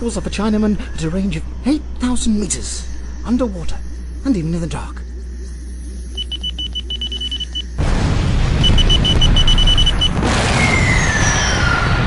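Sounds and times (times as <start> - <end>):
rapid high electronic beeping: 5.8 - 7.8, 8.6 - 10.2.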